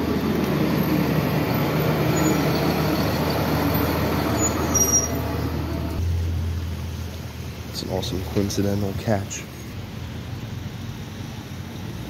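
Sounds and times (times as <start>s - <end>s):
diesel engine droning: 0.0s - 9.6s
brief high squeal: 2.1s - 3.6s, 4.2s - 5.5s.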